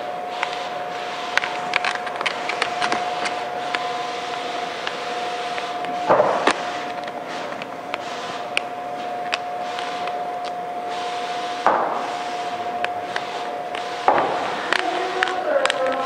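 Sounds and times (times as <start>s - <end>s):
steady hum: 0.0s - 16.0s
film rubbing on plastic: 0.4s - 16.0s
vinyl film clicking and crackling: 1.4s - 3.9s, 14.7s - 16.0s.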